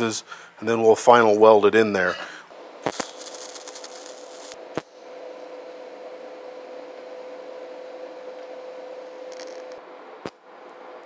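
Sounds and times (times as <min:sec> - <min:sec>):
faint hum: 0:00.0 - 0:11.0
welding arc hissing: 0:02.4 - 0:05.8, 0:09.0 - 0:09.8.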